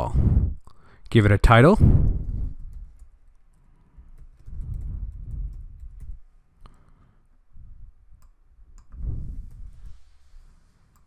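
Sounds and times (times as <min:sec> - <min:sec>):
typing on computer keyboard: 0:02.6 - 0:06.2.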